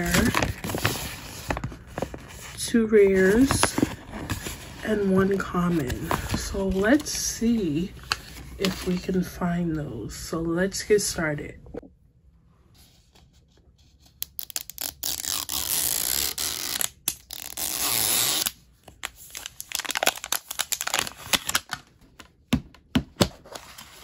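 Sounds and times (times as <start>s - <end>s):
plastic film tearing: 14.2s - 18.6s, 19.2s - 21.8s.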